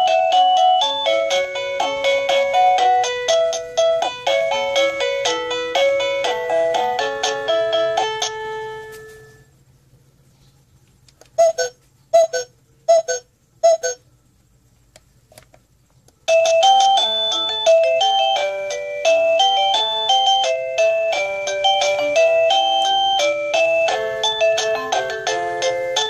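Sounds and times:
fast electronic doorbell tune: 0:00.0 - 0:08.8, 0:16.3 - 0:26.0.

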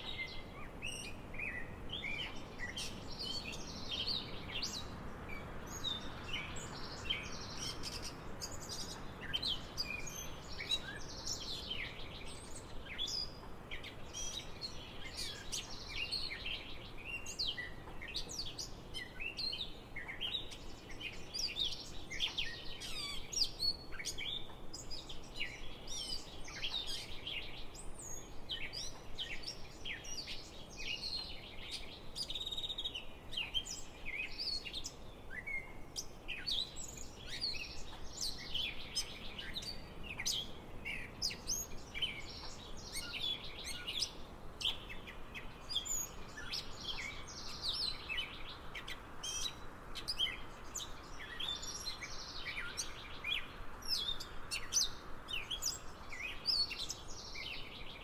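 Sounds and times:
faint outdoor hiss: 0:00.0 - 0:58.0
songbirds chirping: 0:00.0 - 0:58.0.

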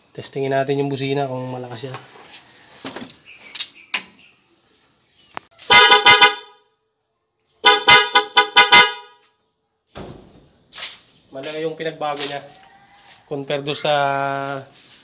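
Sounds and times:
car horn short honks: 0:05.6 - 0:06.6, 0:07.6 - 0:09.3.

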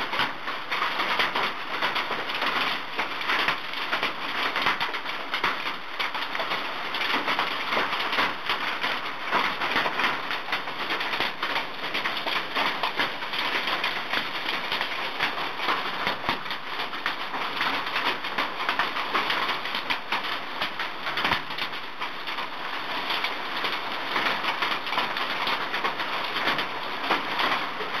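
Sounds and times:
hailstones clattering: 0:00.0 - 0:28.0
rain: 0:00.0 - 0:28.0.

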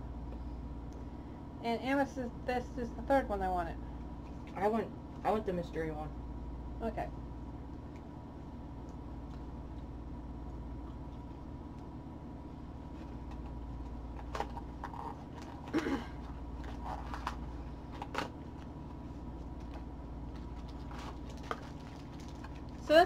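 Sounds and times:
low room hum: 0:00.0 - 0:23.0
wrapping rustling and crinkling: 0:12.8 - 0:23.0.

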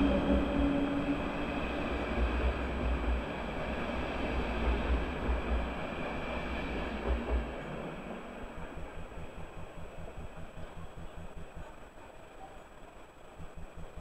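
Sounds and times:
train coaches rumbling past: 0:00.0 - 0:14.0.

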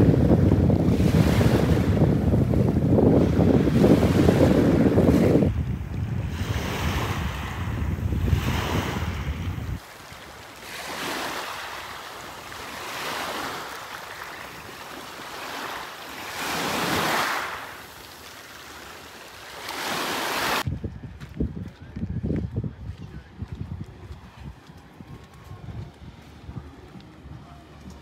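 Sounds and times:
wind buffeting microphone: 0:00.0 - 0:09.9, 0:19.8 - 0:28.0
sea waves washing in: 0:00.0 - 0:20.7.

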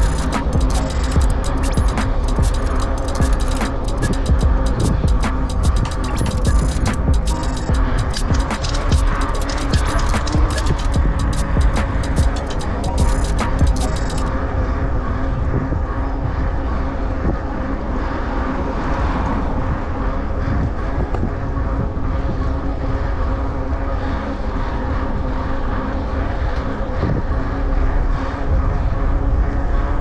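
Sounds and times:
steady droning hum: 0:00.0 - 0:30.0
wind rumbling on microphone: 0:14.3 - 0:30.0.

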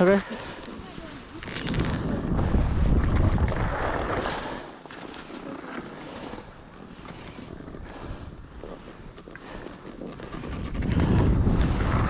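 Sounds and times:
wind buffeting microphone: 0:00.0 - 0:04.6, 0:10.2 - 0:12.0
skis sliding on snow: 0:00.0 - 0:12.0.

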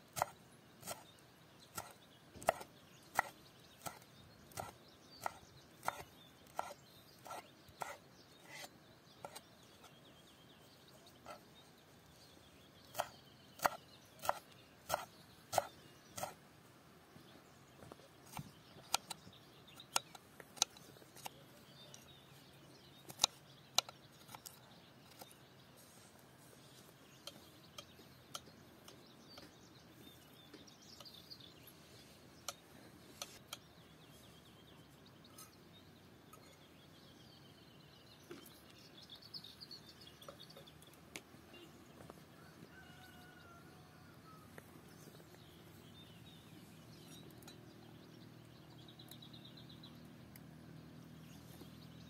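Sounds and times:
birds chirping: 0:00.0 - 0:52.0
knife chopping on wooden board: 0:01.7 - 0:09.4, 0:12.9 - 0:16.4.

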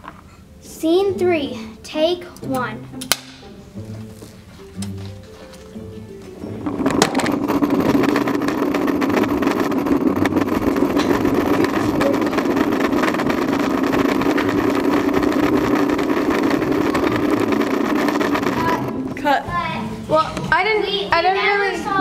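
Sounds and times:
air noise: 0:03.2 - 0:19.2
camera rumbling while running: 0:04.1 - 0:19.2
microphone handling noise: 0:06.6 - 0:19.0.

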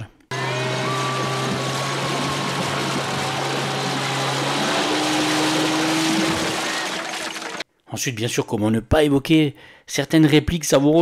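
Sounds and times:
motorboat engine running: 0:00.3 - 0:07.6
rising high tone: 0:00.3 - 0:07.6.

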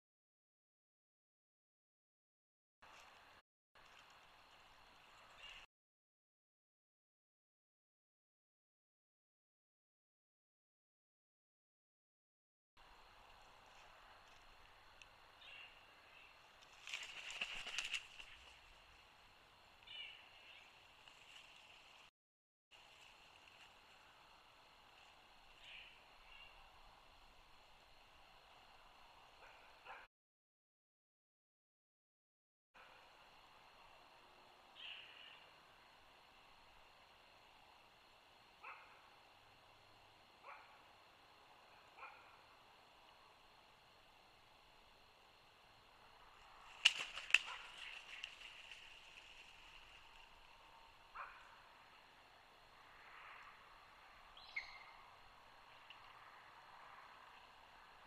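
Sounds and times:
faint animal calls: 0:51.1 - 0:51.9.

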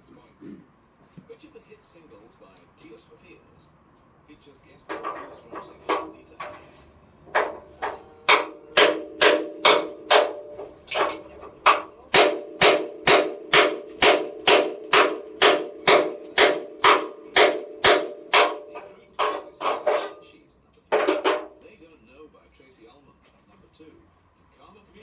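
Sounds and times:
hammer striking steel: 0:07.3 - 0:21.6.

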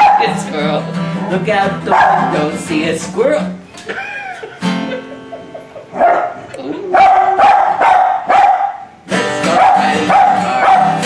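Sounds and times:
dog howling and yelping: 0:06.0 - 0:08.1.

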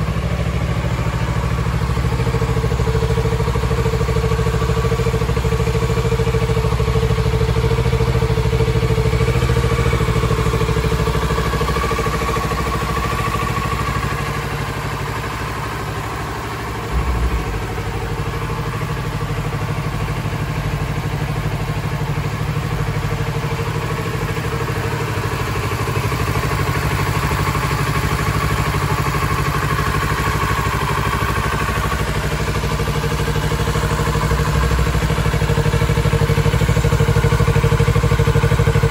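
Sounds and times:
motorcycle engine idling: 0:00.0 - 0:38.9
low thump: 0:16.8 - 0:19.8.

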